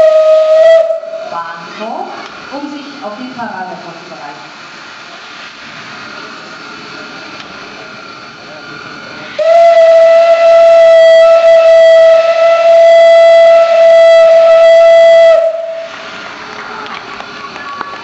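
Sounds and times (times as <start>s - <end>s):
steam locomotive whistle blast: 0.0s - 1.8s, 9.3s - 16.1s.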